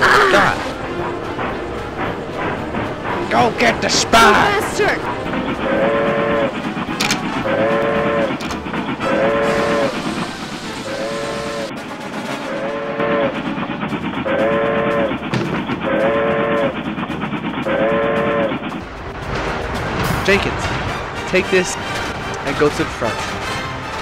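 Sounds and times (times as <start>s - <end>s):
train running noise: 0.0s - 24.0s
steam locomotive whistle blasts: 7.4s - 8.4s, 9.0s - 11.7s, 12.5s - 13.4s, 14.2s - 15.1s, 15.8s - 16.7s, 17.7s - 18.6s.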